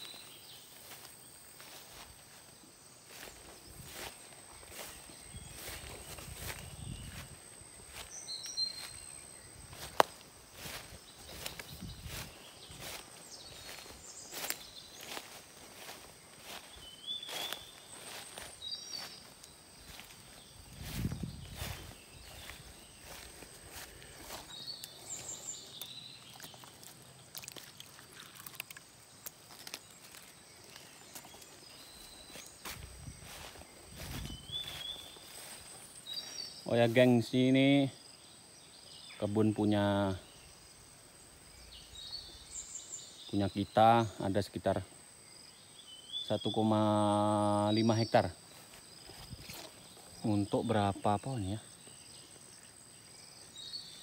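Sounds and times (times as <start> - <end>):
footsteps through grass: 0.0 - 37.6, 46.5 - 51.5
high insect whine: 0.0 - 54.0
high bird chirps: 7.9 - 26.8, 30.2 - 36.7.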